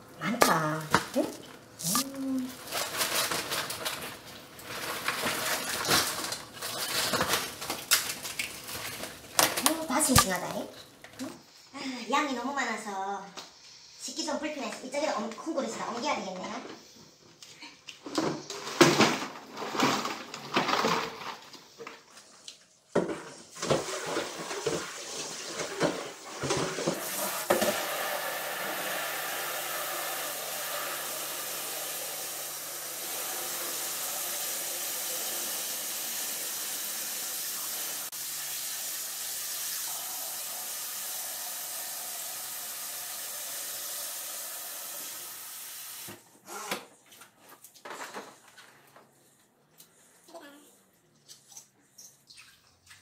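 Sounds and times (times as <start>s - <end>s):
crabs and plastic basins clattering: 2.6s - 10.4s, 18.1s - 21.7s, 23.0s - 27.9s.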